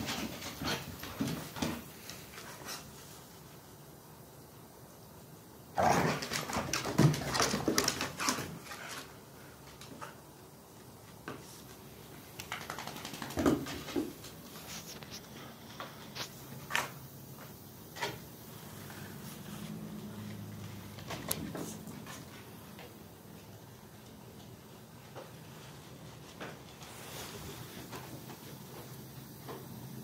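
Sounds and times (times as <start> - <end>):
dogs play-fighting noises: 0.0 - 3.2, 5.8 - 10.3.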